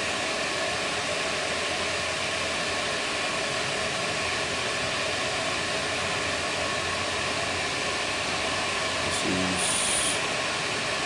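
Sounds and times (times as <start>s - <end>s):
motor whirring hiss: 9.1s - 10.2s.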